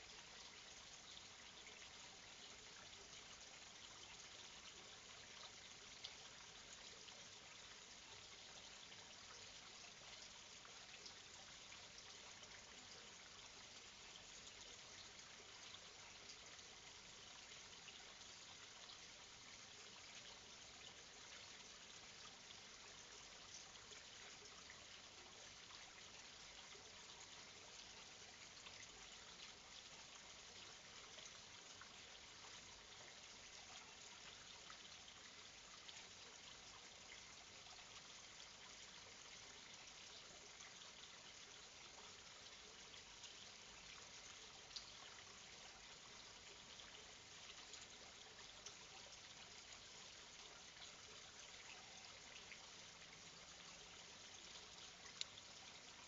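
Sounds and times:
faint microphone hiss: 0.0s - 56.0s.

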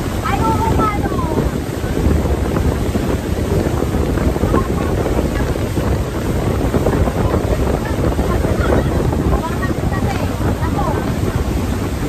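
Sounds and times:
speedboat engine: 0.0s - 12.0s
water rushing from hull: 0.0s - 12.0s
wind buffeting microphone: 0.0s - 12.0s.

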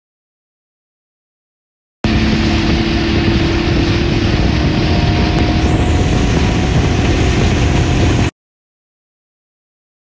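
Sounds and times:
outboard motor humming: 2.0s - 8.3s
rushing water: 2.0s - 8.3s
rushing wind: 2.0s - 8.3s.

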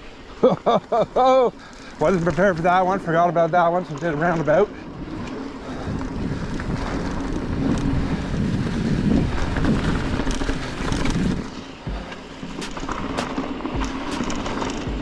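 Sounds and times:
tyre and trail rumble: 0.2s - 15.0s
bike clicks and rattles: 0.8s - 15.0s
wind rushing over microphone: 4.6s - 15.0s.

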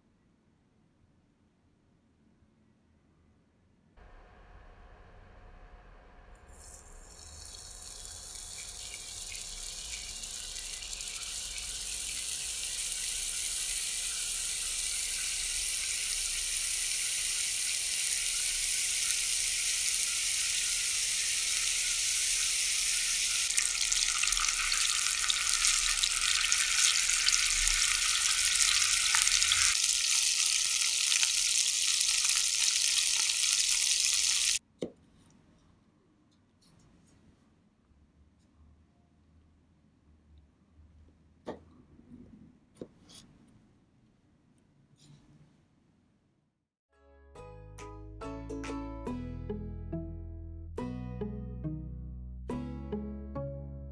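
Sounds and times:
meat sizzling in a frying pan: 6.9s - 34.6s.

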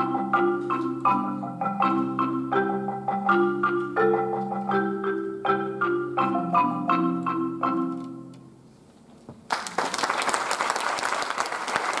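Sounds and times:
marimba playing: 0.0s - 8.6s
audience applause: 9.5s - 12.0s.

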